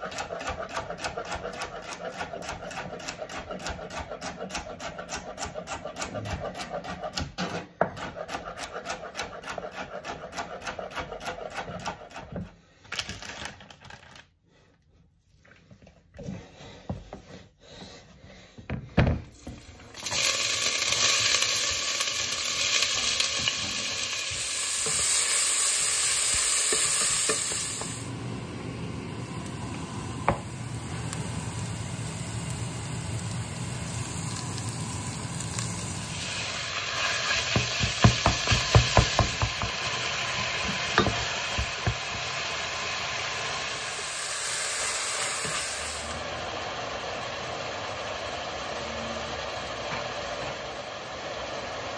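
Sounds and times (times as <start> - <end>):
vegetables sizzling in a pot: 19.3 - 51.9.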